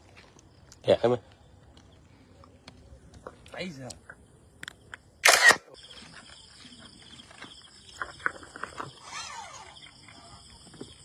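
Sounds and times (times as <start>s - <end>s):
crickets trilling: 0.0s - 11.0s
short clicks: 4.6s - 5.6s.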